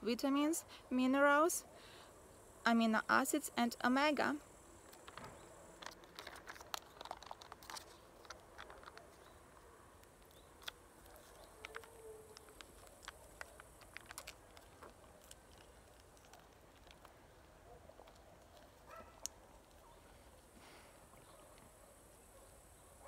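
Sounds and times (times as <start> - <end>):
small clicks of sachet tearing: 5.8 - 17.3
drink sachet crinkling: 5.8 - 19.8.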